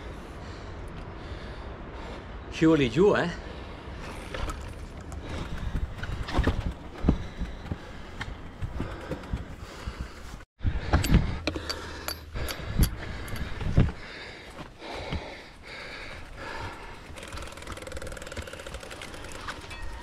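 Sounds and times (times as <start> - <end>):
bike rattling over rocky ground: 4.1 - 9.6, 16.1 - 20.0.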